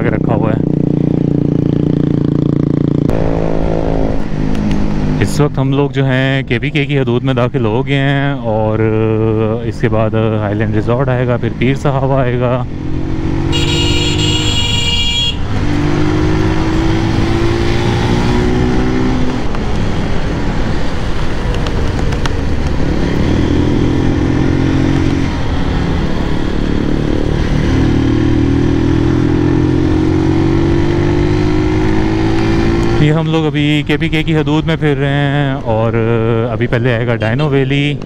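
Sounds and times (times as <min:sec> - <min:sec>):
motorcycle engine revving: 0:00.0 - 0:05.5, 0:11.2 - 0:34.3
horn honking: 0:13.4 - 0:15.6.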